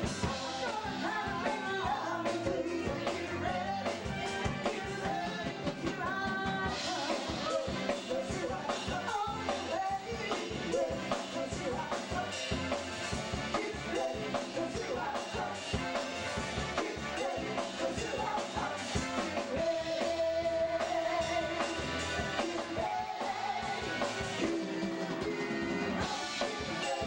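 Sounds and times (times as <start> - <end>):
drum kit beat: 0.0 - 27.0
keyboard: 0.0 - 27.0
lead singer singing: 0.0 - 27.0
backing singers: 13.4 - 27.0.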